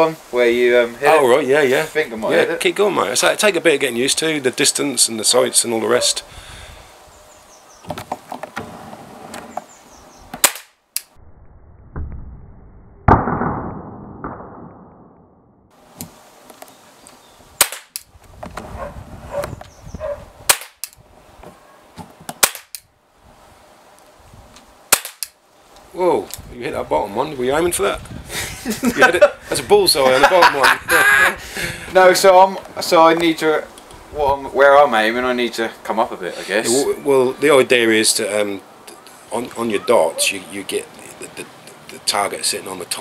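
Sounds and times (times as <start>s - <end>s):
pellet pistol shots popping: 10.4s - 10.8s, 17.6s - 18.1s, 20.5s - 21.0s, 22.4s - 22.9s, 24.9s - 25.3s.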